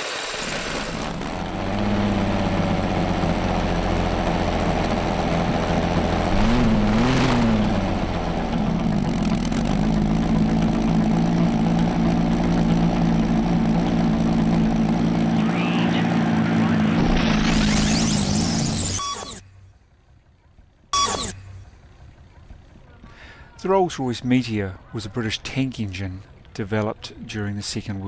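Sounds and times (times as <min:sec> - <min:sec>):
engine idling with throttle blips: 0:00.0 - 0:28.0.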